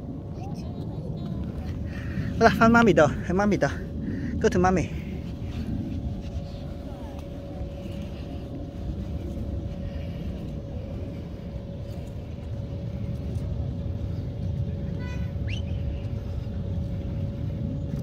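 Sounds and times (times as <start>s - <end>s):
faint steady hum: 0.0s - 18.0s
low outdoor rumble: 0.0s - 18.0s.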